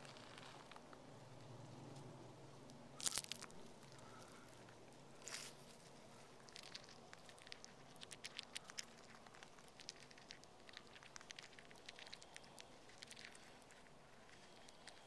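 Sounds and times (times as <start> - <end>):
chipmunk biting seeds: 3.0 - 4.4, 5.2 - 15.0.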